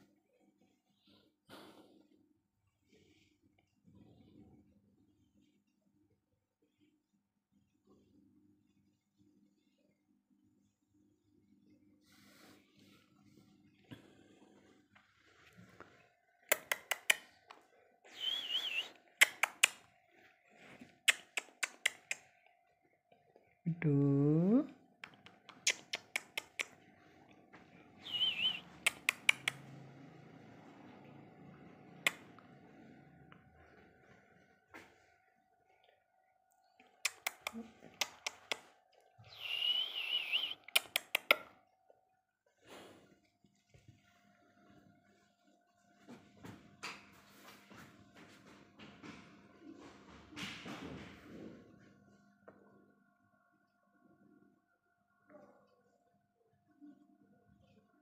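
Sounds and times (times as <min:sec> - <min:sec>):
sharp clicks: 0:16.5 - 0:17.3, 0:19.2 - 0:19.8, 0:21.0 - 0:22.3, 0:28.8 - 0:29.6, 0:37.0 - 0:38.7, 0:40.3 - 0:41.5
parakeet whistling: 0:18.1 - 0:19.0, 0:28.0 - 0:29.0, 0:39.3 - 0:40.6.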